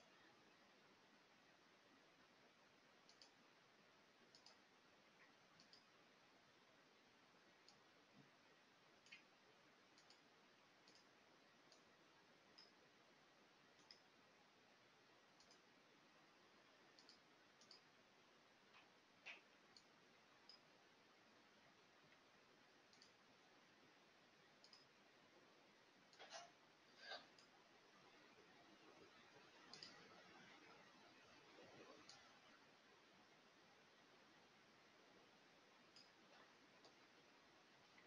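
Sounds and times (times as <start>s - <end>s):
faint computer mouse clicks: 3.0s - 3.4s, 4.3s - 4.6s, 5.2s - 5.9s, 7.6s - 8.3s, 9.0s - 9.3s, 10.0s - 11.1s, 11.7s - 11.9s, 13.8s - 14.1s, 15.4s - 15.6s, 17.0s - 17.9s, 18.7s - 19.9s, 20.5s - 20.7s, 22.9s - 23.2s, 24.6s - 24.9s, 29.6s - 30.2s, 31.6s - 32.4s, 35.9s - 37.0s.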